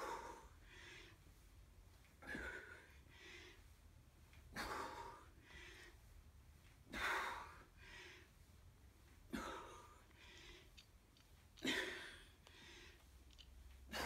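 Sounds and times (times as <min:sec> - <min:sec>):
man breathing hard: 0:00.0 - 0:01.5, 0:02.2 - 0:03.9, 0:04.5 - 0:06.2, 0:06.8 - 0:08.6, 0:09.3 - 0:10.9, 0:11.6 - 0:14.0.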